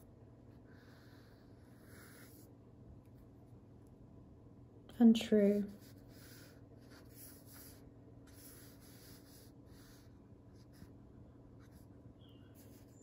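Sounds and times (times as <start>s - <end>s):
pen scratching on paper: 5.6s - 10.9s, 12.5s - 13.0s.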